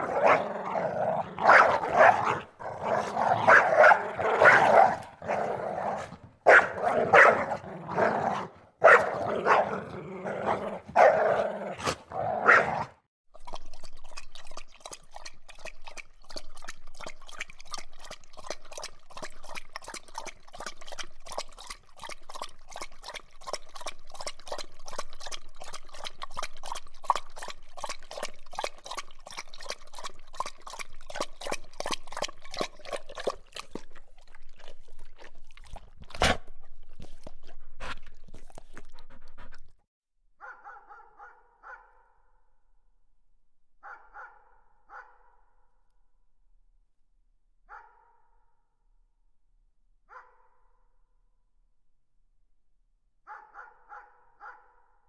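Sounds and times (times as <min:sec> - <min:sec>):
dog lapping water: 0:00.0 - 0:00.4, 0:13.3 - 0:39.8
dog barking: 0:01.4 - 0:02.4, 0:03.4 - 0:05.1, 0:06.5 - 0:07.6, 0:08.8 - 0:09.8, 0:10.9 - 0:11.4, 0:12.4 - 0:12.9, 0:40.4 - 0:42.0, 0:43.8 - 0:45.3, 0:47.7 - 0:48.2, 0:50.1 - 0:50.5, 0:53.3 - 0:54.8.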